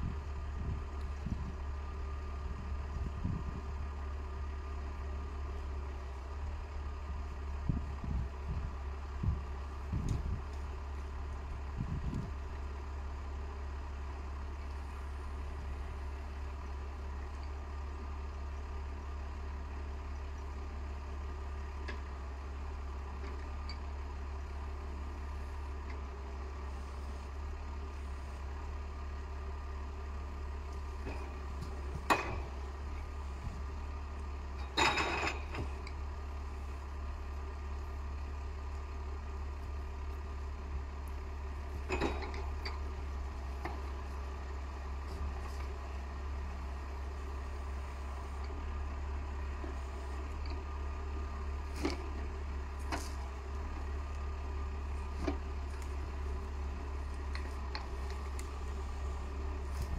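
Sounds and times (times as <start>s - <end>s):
tractor diesel engine idling: 0.0s - 59.9s
crane grapple rattling clatter: 0.4s - 59.9s
grapple knocking and snapping wood: 31.0s - 32.6s.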